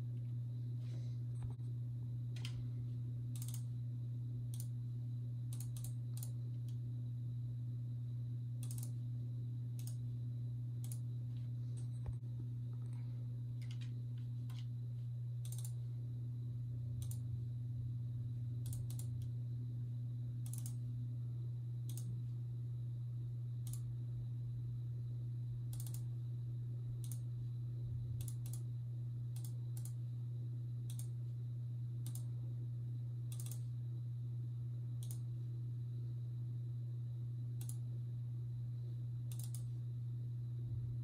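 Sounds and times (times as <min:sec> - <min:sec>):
steady low hum: 0:00.0 - 0:41.0
computer mouse clicking: 0:03.4 - 0:03.7, 0:04.5 - 0:04.7, 0:05.5 - 0:06.8, 0:08.6 - 0:09.0, 0:09.8 - 0:10.0, 0:10.8 - 0:11.0, 0:15.4 - 0:15.8, 0:17.0 - 0:17.2, 0:18.6 - 0:19.3, 0:20.4 - 0:20.8, 0:21.9 - 0:22.1, 0:23.6 - 0:23.8, 0:25.7 - 0:26.1, 0:27.0 - 0:27.2, 0:28.2 - 0:28.7, 0:29.4 - 0:30.0, 0:30.9 - 0:31.2, 0:32.0 - 0:32.3, 0:33.3 - 0:33.7, 0:35.0 - 0:35.2, 0:37.6 - 0:37.8, 0:39.3 - 0:39.7.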